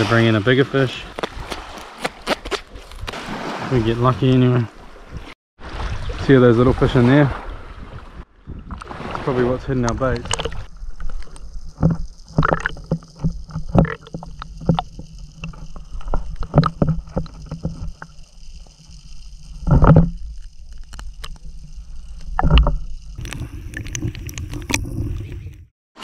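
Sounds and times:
muffled underwater water rumble: 7.8s - 25.7s
knocks and clicks: 11.7s - 18.2s, 19.6s - 20.2s, 22.2s - 23.4s
water sloshing: 11.7s - 21.6s, 22.3s - 25.6s.

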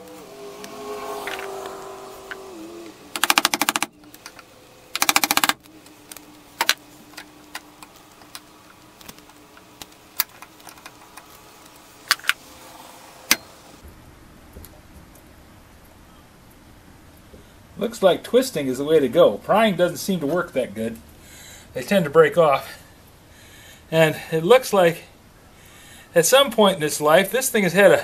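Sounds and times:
rapid clicking bursts: 3.1s - 4.0s, 4.9s - 5.7s.

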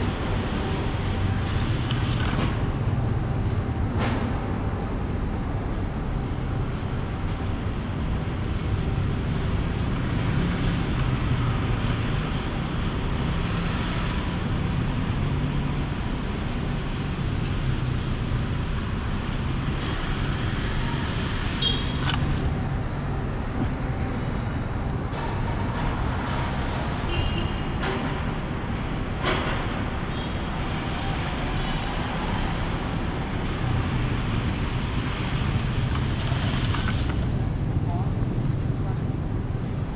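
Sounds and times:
road traffic rumble: 0.0s - 39.9s.

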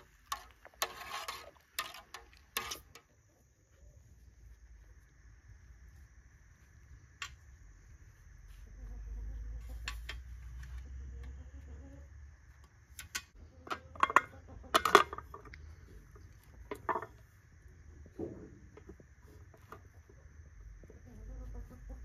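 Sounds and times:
dishes and utensils clinking: 14.0s - 15.4s.

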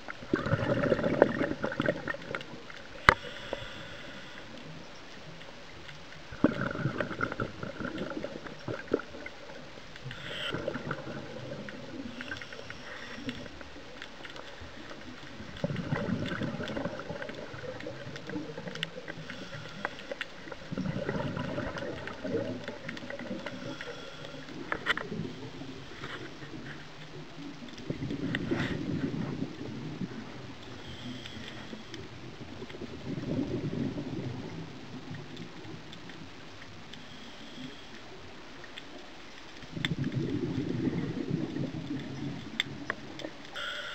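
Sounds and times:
bubbling exhalation underwater: 0.2s - 2.7s, 6.3s - 9.5s, 10.2s - 12.1s, 15.4s - 19.5s, 20.5s - 23.7s, 32.8s - 34.6s, 39.7s - 42.6s
hissing regulator inhalations: 3.0s - 4.7s, 19.1s - 20.5s, 23.2s - 25.0s, 43.6s - 43.9s.

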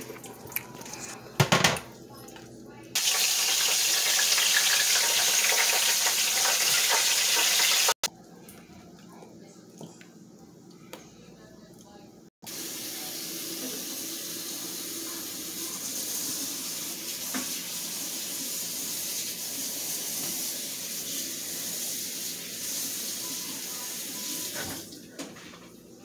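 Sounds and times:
water running from a tap: 3.0s - 8.1s, 12.5s - 25.1s.

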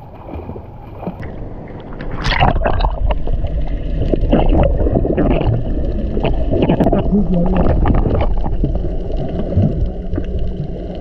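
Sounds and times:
muffled underwater rumble: 0.0s - 11.0s
water gurgling and splashing: 0.0s - 11.0s
bubbly clicks: 2.0s - 11.0s.

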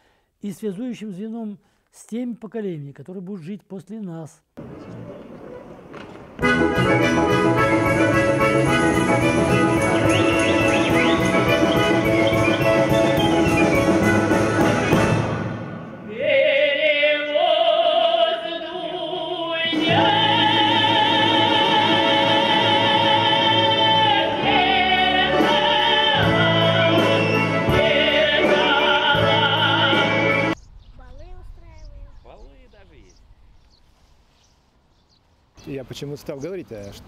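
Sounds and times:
woman singing operatic folk song: 16.3s - 30.6s.

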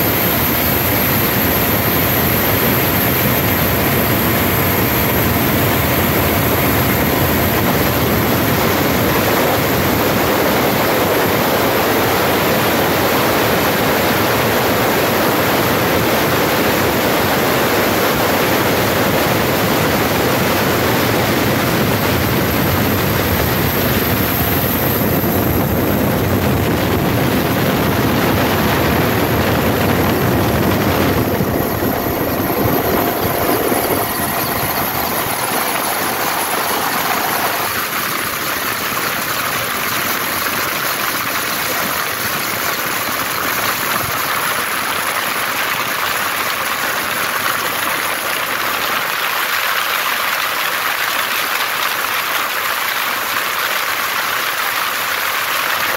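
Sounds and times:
light aircraft engine: 0.0s - 55.9s.

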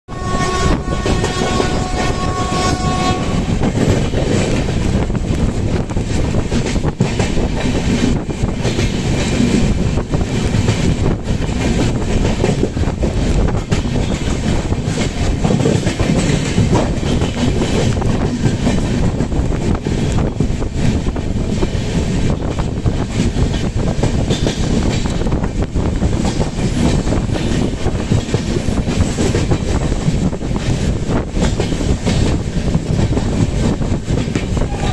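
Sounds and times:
train horn: 0.1s - 3.7s, 34.6s - 34.9s.

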